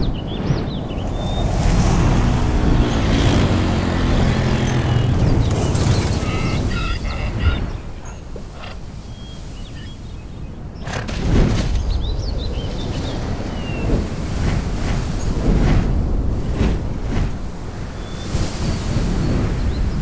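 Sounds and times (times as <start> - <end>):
motor droning hum: 0.8 - 8.9
short honking calls: 2.8 - 8.8.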